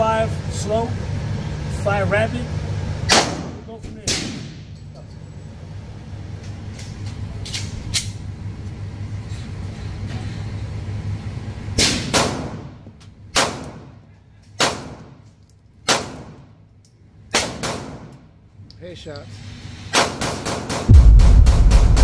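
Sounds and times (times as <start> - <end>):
pistol shots echoing indoors: 11.8 - 12.7, 13.3 - 13.9, 14.6 - 15.1, 15.8 - 16.4, 17.3 - 18.2.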